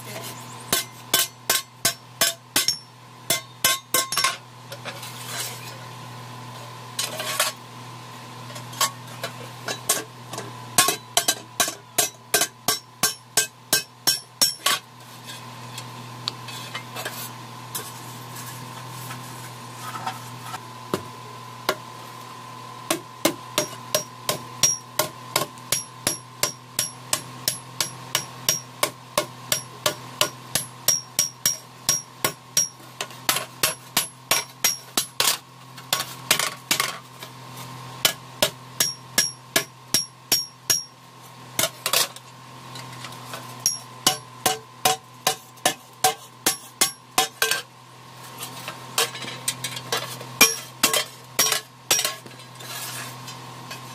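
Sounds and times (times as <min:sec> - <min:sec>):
hammer striking metal plate: 0:00.7 - 0:04.4, 0:38.1 - 0:40.9
steady hum: 0:08.5 - 0:37.2.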